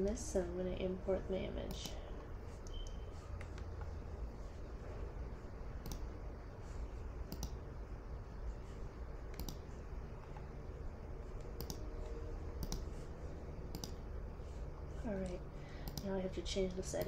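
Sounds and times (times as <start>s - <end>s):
low steady hum: 0.0s - 17.0s
computer mouse clicks: 1.6s - 4.0s, 5.8s - 6.2s, 7.2s - 7.6s, 9.2s - 10.5s, 11.3s - 11.9s, 12.6s - 13.0s, 13.7s - 14.0s, 15.2s - 16.1s.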